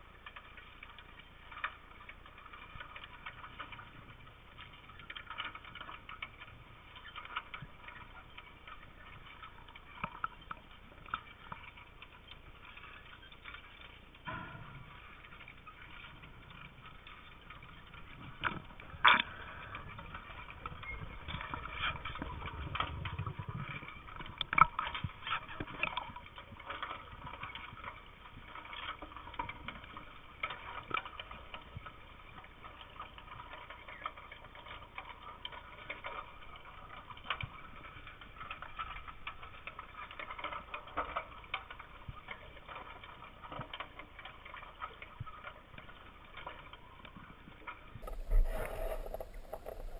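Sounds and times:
sharp underwater clicks and knocks: 0.2 - 31.9, 32.6 - 49.9.

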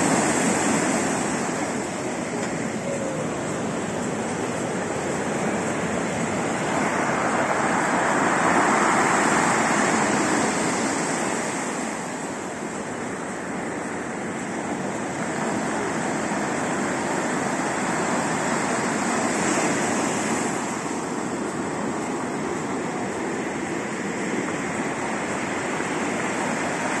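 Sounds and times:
heavy waves breaking: 0.0 - 27.0.

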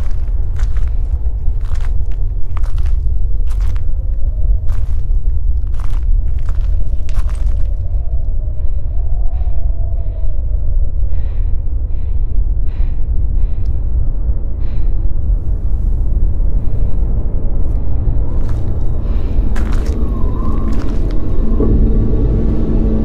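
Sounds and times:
woman breathing heavily: 0.0 - 2.0, 8.4 - 21.5
wind buffeting microphone: 0.0 - 23.0.

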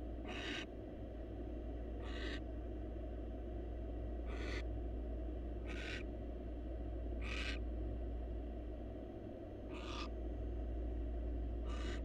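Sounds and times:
owl hissing calls: 0.3 - 0.6, 2.0 - 2.4, 4.3 - 4.6, 5.7 - 6.0, 7.2 - 7.6, 9.7 - 10.1, 11.6 - 12.0.

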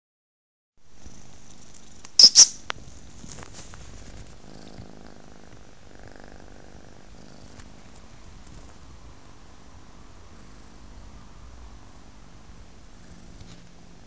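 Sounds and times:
kitten purring: 2.3 - 11.3, 12.4 - 14.0.

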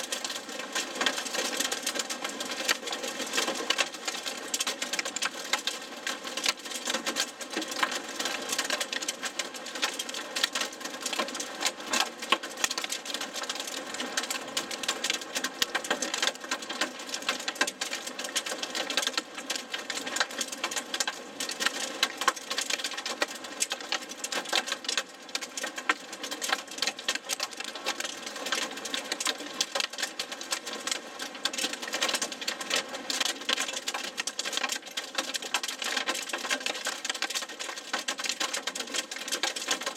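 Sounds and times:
rain and hail pelting car roof: 0.0 - 39.9.

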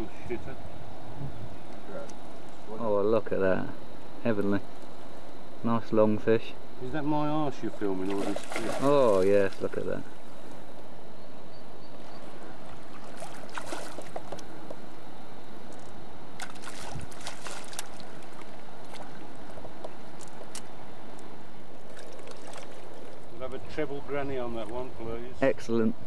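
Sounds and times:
sharp water splashes: 8.0 - 9.7, 12.9 - 14.4, 16.4 - 19.6, 21.9 - 23.2.

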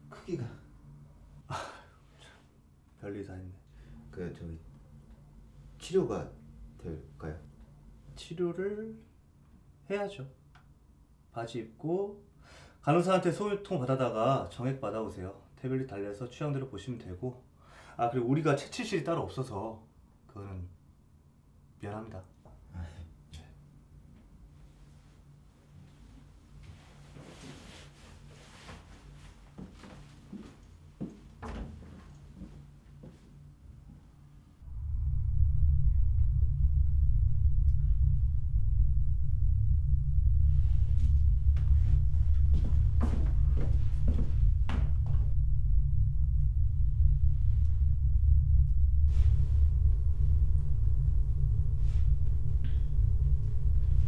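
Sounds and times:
low room hum: 0.0 - 54.0
low rumbling drone: 3.5 - 8.4, 34.6 - 54.0
faint soft sounds: 22.2 - 54.0
clothing rustling: 26.0 - 30.6.

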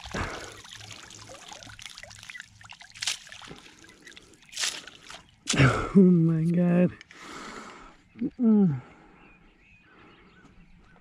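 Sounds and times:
water trickling and dripping: 0.0 - 5.8
water splashing: 0.0 - 6.0.

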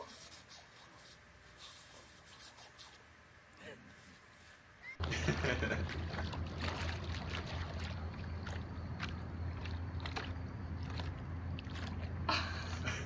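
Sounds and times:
steady low hum: 0.0 - 13.0
water splashing and lapping: 5.0 - 13.0.

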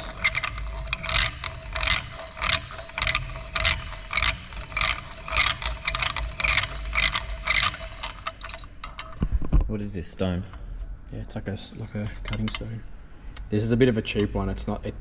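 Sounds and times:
stone grinding piston ring: 0.0 - 8.8.

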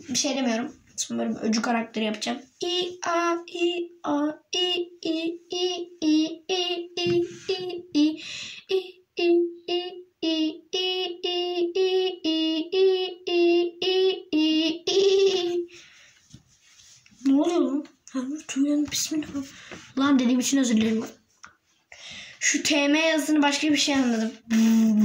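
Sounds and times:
child chanting syllables: 0.0 - 15.7.

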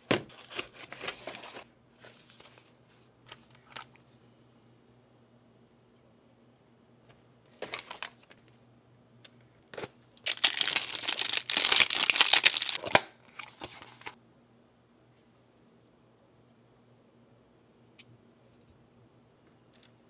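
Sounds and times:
packaging rustling and crinkling: 0.2 - 2.7, 7.5 - 8.4, 9.8 - 14.2.

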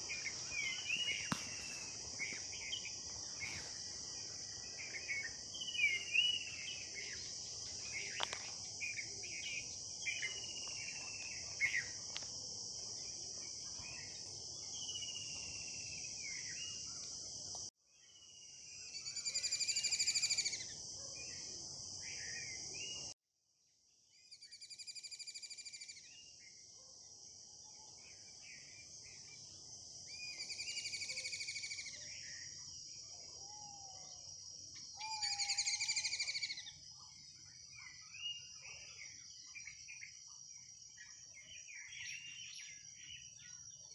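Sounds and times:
birds chirping and trilling: 0.0 - 11.9, 30.1 - 43.9
insect chorus: 0.0 - 23.2, 23.9 - 43.9.

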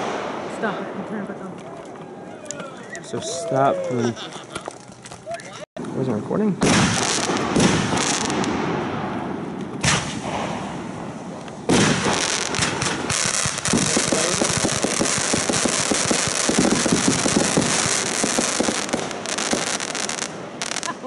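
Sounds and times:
fireworks bangs and crackling: 0.0 - 2.0, 6.5 - 21.0.

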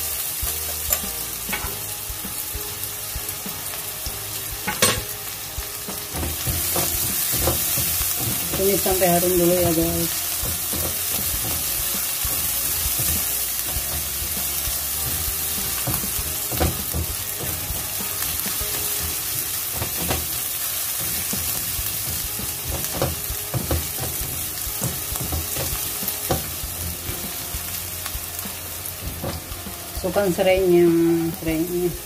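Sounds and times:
vegetables sizzling in hot oil: 0.0 - 32.0
spatula scraping and tapping pan: 6.0 - 27.2.

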